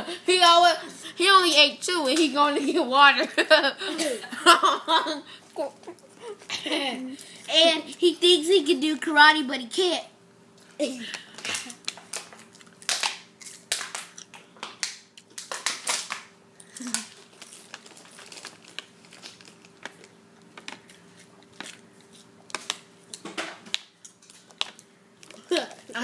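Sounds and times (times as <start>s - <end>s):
plastic water bottle crinkling: 16.8s - 21.0s.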